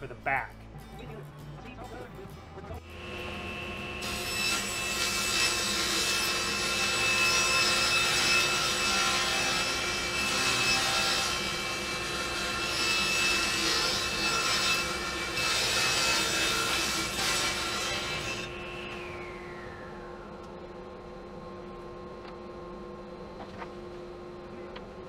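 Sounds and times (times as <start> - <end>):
table saw whining: 2.8 - 21.6.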